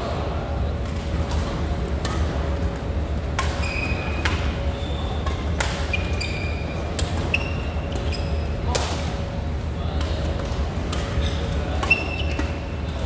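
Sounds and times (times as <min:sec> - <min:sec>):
steady low hum: 0:00.0 - 0:13.0
rackets striking shuttlecock: 0:00.9 - 0:09.2, 0:09.9 - 0:13.0
shoes squeaking on court: 0:03.4 - 0:08.6, 0:11.1 - 0:13.0.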